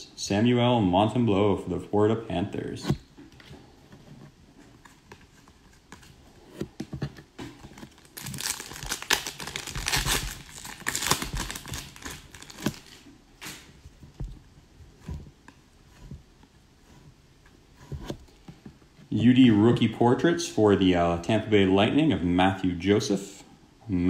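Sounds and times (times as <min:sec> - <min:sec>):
foil wrapper crinkling and tearing: 0:07.8 - 0:13.0.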